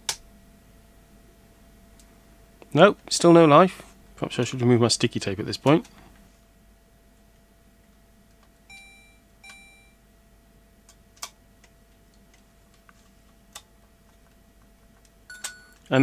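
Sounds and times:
short electronic beeps: 8.7s - 10.0s.

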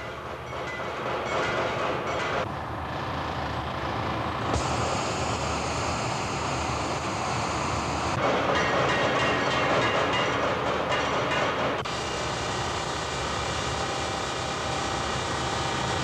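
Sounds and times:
machinery rumble: 0.0s - 16.0s
high hiss: 4.5s - 8.2s.

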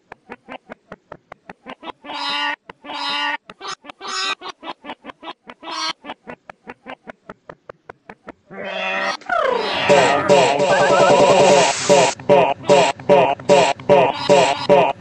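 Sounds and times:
pitched vocal notes: 9.3s - 15.0s.

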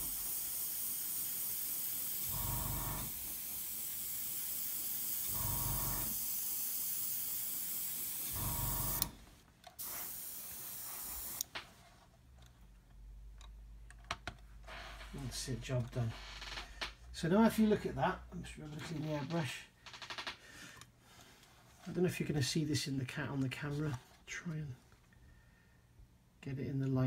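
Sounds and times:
airbrush spraying paint: 0.0s - 9.1s, 9.8s - 11.4s.

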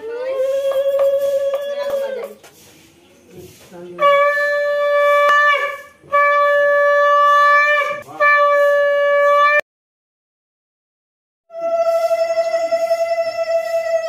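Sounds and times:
conch shell blasts: 4.0s - 9.6s, 11.5s - 14.0s.

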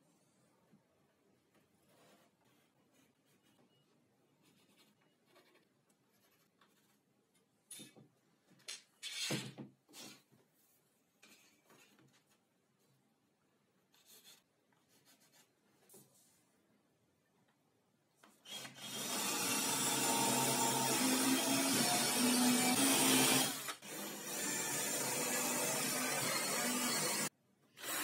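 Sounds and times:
pencil scratching: 4.4s - 7.1s, 13.9s - 15.6s
cordless drill boring into board: 18.5s - 28.0s.

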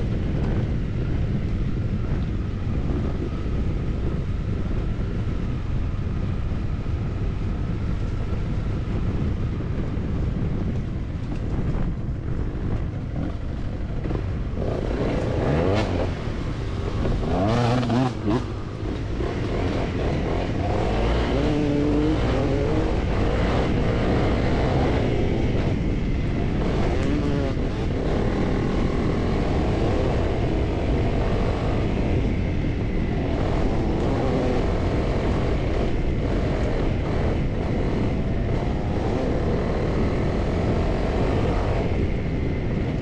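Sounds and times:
motorcycle engine revving: 12.4s - 43.0s.

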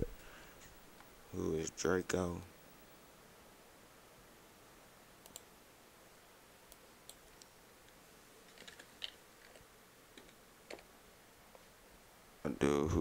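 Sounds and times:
mouse clicks: 5.2s - 5.5s.

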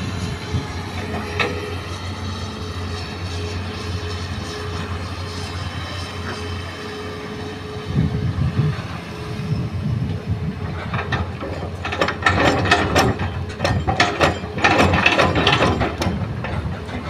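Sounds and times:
excavator diesel engine under load: 0.0s - 17.0s
rapid clattering and rattling: 10.7s - 17.0s.

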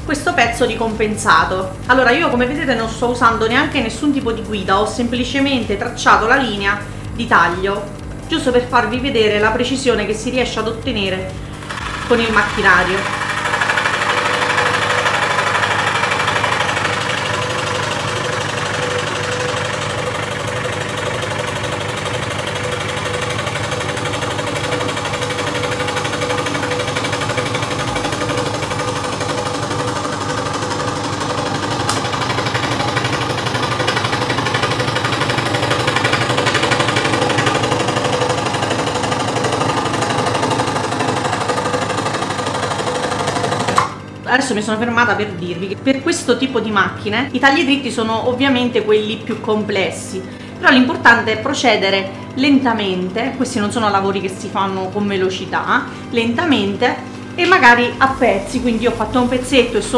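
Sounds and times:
scroll saw cutting plywood: 11.5s - 44.0s.

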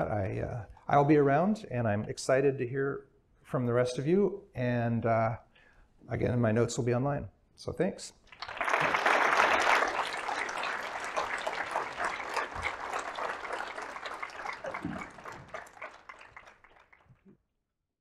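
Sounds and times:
audience applauding: 8.3s - 17.2s.

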